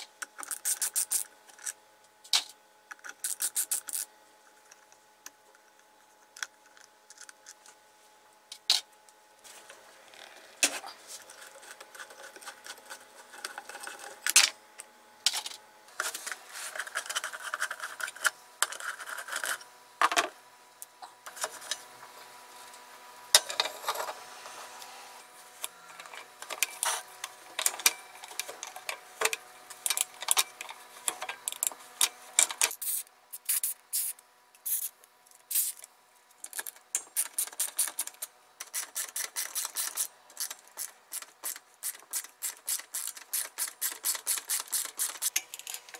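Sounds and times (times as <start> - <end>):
faint steady hum: 0.0 - 45.9
screwdrivers clicking and scraping: 0.2 - 4.1, 5.6 - 7.8, 10.6 - 14.5, 16.7 - 19.6, 25.6 - 34.1, 34.7 - 45.9.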